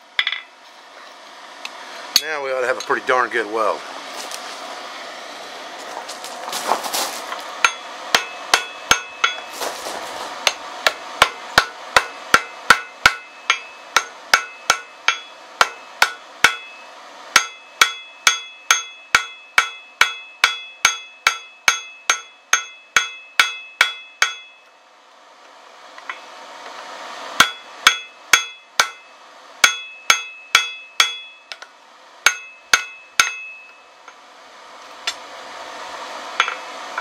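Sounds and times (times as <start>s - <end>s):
hammer striking steel on anvil: 0.2s - 0.5s, 2.2s - 3.0s, 7.6s - 9.5s, 10.4s - 24.7s, 27.4s - 34.2s, 36.4s - 37.0s
anvil ringing: 7.6s - 9.5s, 10.5s - 24.7s, 27.4s - 31.6s, 32.2s - 33.9s, 36.4s - 36.6s.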